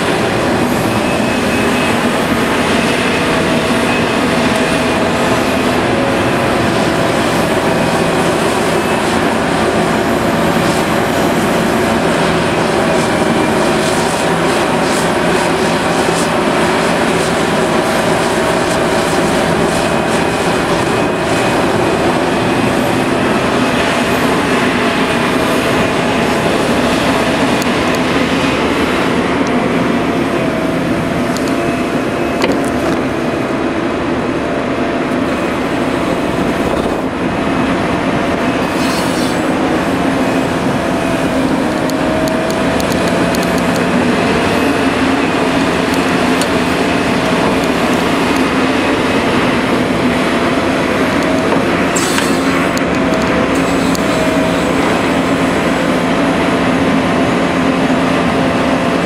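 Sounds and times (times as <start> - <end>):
excavator engine and hydraulics droning: 0.0 - 59.0.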